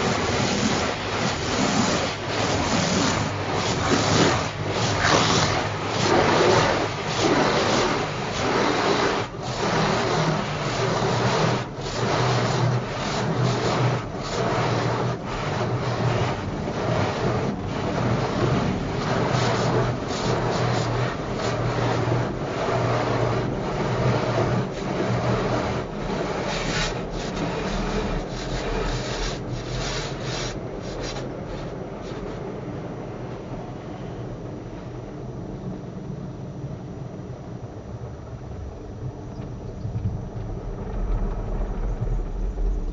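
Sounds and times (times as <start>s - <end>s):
spraying water: 0.0s - 32.5s
car wash brushes scrubbing: 0.0s - 32.7s.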